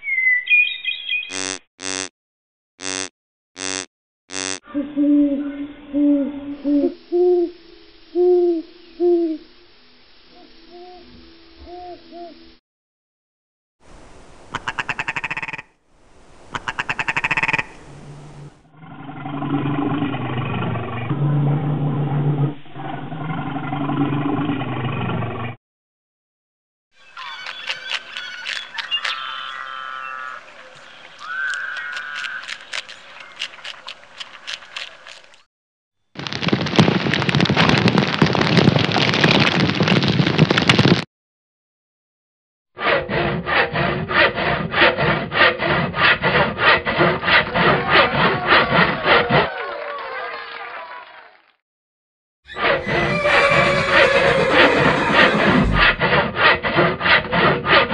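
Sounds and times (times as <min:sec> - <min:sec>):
crosscut saw rasping through log: 0:42.8 - 0:49.3, 0:55.4 - 0:57.9
bear growling: 0:52.6 - 0:56.8.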